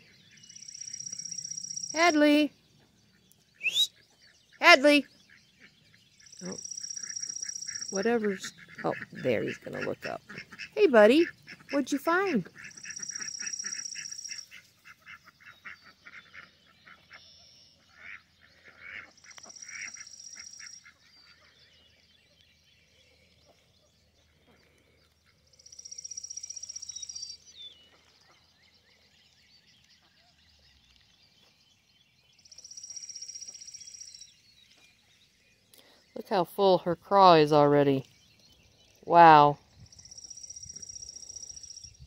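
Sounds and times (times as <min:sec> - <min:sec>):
songbird trilling: 0:00.4 - 0:02.5, 0:03.6 - 0:04.0, 0:06.2 - 0:14.6, 0:19.3 - 0:20.9, 0:25.6 - 0:27.8, 0:32.4 - 0:34.4, 0:37.8 - 0:42.0
ducks quacking: 0:06.4 - 0:17.2.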